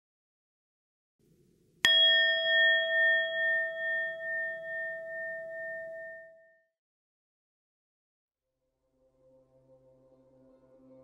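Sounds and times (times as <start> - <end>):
bell ringing with pulsing tone: 1.9 - 6.7.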